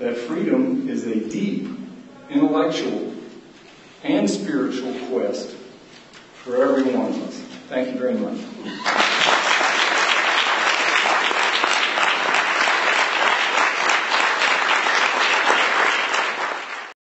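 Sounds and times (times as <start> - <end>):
crowd applauding: 8.7 - 17.0.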